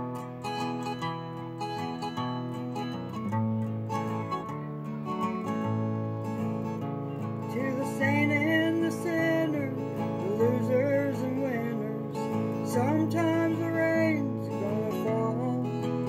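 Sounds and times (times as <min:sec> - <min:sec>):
acoustic guitar strumming: 0:00.0 - 0:16.0
woman singing: 0:07.4 - 0:16.0.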